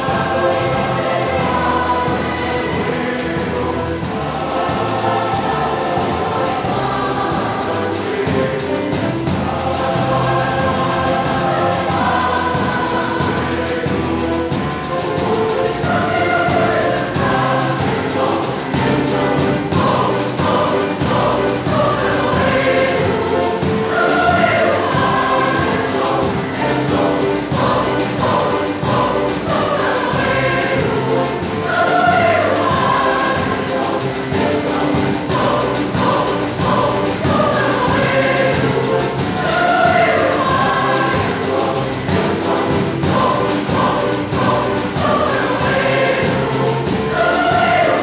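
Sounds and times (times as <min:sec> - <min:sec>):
choir singing in harmony: 0:00.0 - 0:48.0.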